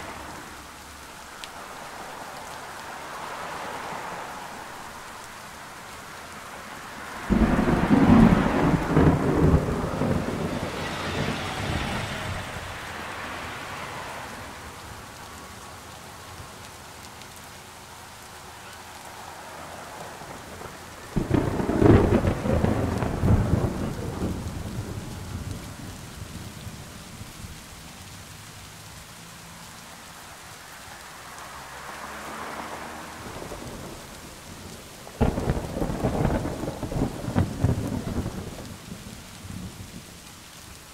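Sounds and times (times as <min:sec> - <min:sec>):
steady rain: 0:00.0 - 0:40.9
thunderclaps rumbling: 0:07.2 - 0:13.6, 0:20.1 - 0:27.8, 0:32.5 - 0:40.3.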